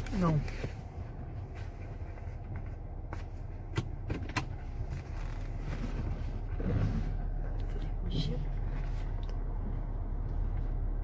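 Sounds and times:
car road and engine rumble: 0:00.0 - 0:11.0.

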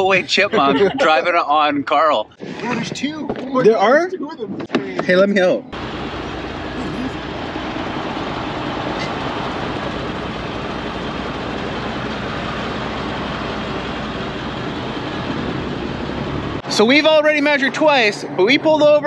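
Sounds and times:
road traffic: 0:04.6 - 0:19.0
heavy truck engine running: 0:05.8 - 0:16.6.

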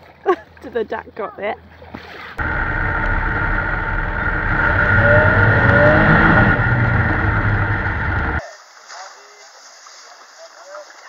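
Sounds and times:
faint rising and falling tones: 0:02.4 - 0:08.4
vehicle engine driving: 0:02.4 - 0:08.4.

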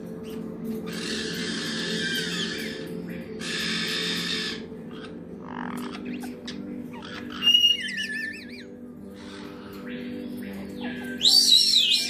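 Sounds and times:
parrot squawk: 0:00.8 - 0:09.8.

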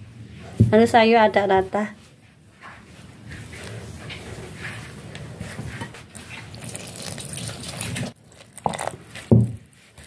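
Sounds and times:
thump: 0:09.3 - 0:09.6.

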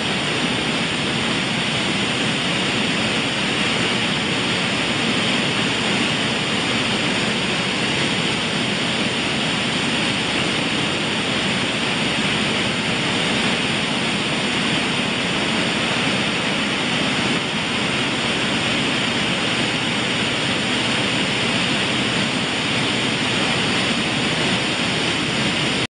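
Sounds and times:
machinery running: 0:00.0 - 0:25.9.

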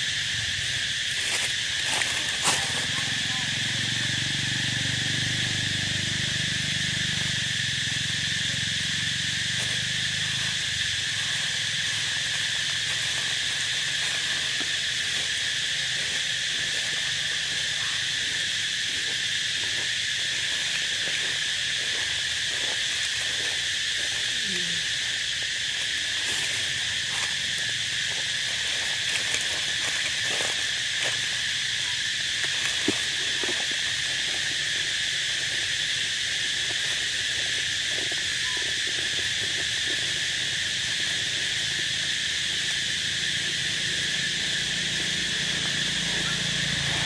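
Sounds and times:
dry leaves rustling: 0:00.0 - 0:47.0
insect chorus drone: 0:00.0 - 0:47.0.

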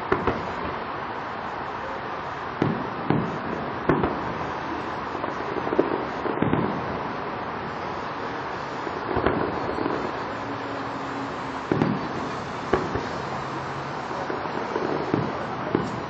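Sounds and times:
distant fireworks bursting: 0:00.0 - 0:16.0
steady background hiss: 0:00.0 - 0:16.0.

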